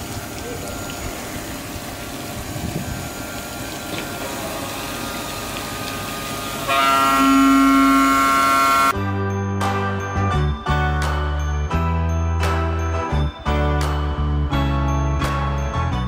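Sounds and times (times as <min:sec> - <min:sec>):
faint machine hum: 0:00.0 - 0:08.9
spraying water hiss: 0:00.0 - 0:08.9.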